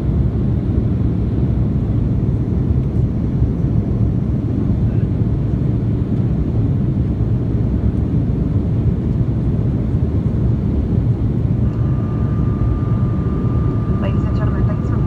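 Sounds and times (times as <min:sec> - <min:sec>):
airliner engine roar: 0:00.0 - 0:15.0
faint high tone: 0:11.6 - 0:15.0.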